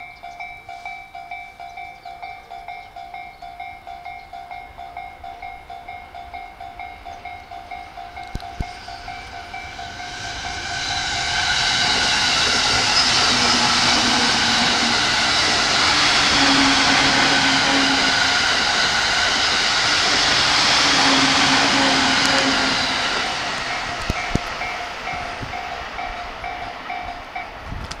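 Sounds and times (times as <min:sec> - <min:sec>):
level crossing warning bell: 0:00.0 - 0:27.6
train wheels rushing on rail: 0:04.6 - 0:28.0
train motor hum: 0:07.1 - 0:26.9.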